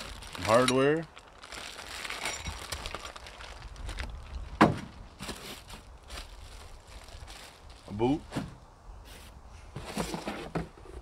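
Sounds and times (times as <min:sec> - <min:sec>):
plastic bag rustling: 0:00.0 - 0:08.6.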